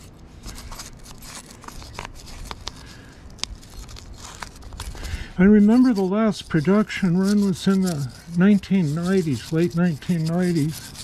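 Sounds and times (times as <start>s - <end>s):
wire brush scrubbing metal: 3.6s - 11.0s.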